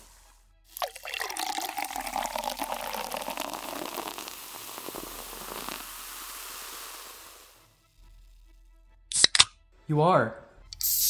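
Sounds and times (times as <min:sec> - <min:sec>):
soda pouring and fizzing: 0:00.0 - 0:07.7.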